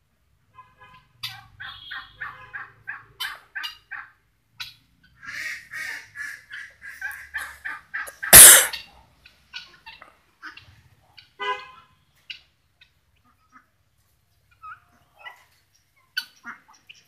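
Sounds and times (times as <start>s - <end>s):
guineafowl cackling: 5.2s - 8.8s.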